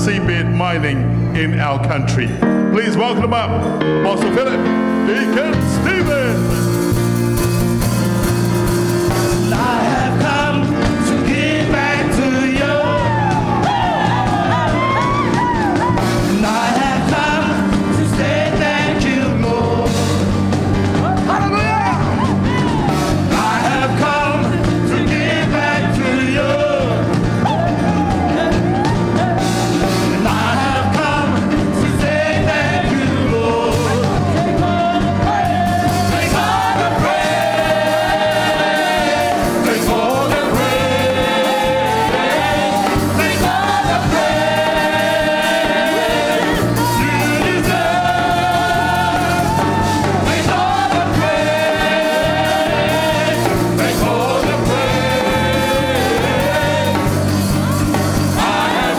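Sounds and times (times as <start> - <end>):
live band playing: 0.0 - 58.9
group of voices singing: 8.5 - 21.4, 22.0 - 58.9.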